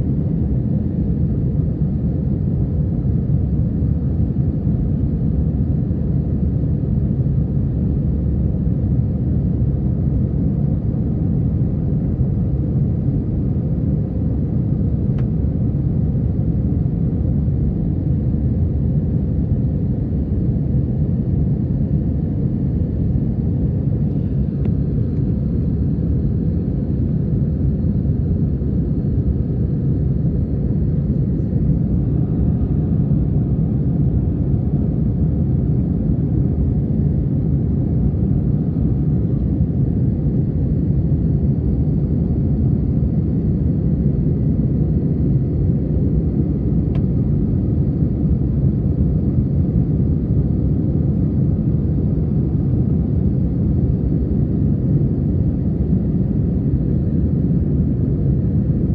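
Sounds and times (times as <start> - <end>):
jet engines droning: 0.0 - 58.9.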